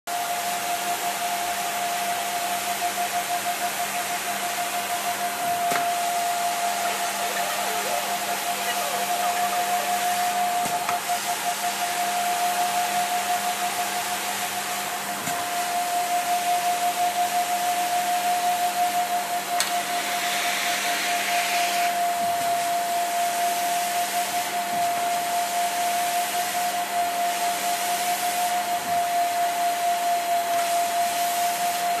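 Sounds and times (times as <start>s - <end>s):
carpet cleaner motor whine: 0.1s - 32.0s
hiss of air and steam: 19.6s - 22.7s.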